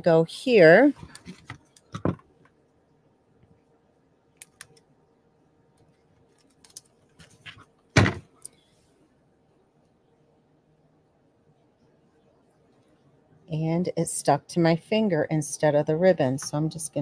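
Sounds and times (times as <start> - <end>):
objects knocking on table: 8.0 - 8.3.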